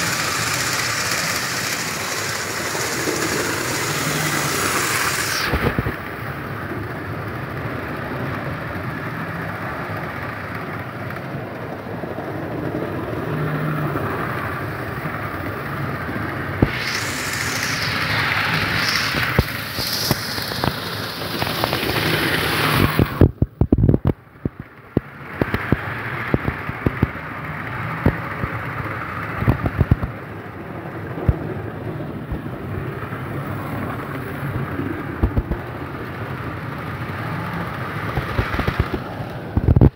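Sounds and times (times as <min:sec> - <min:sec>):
model train wheels rumbling on rails: 0:00.0 - 0:39.9
clicks over rail joints: 0:14.3 - 0:30.2, 0:37.5 - 0:39.9.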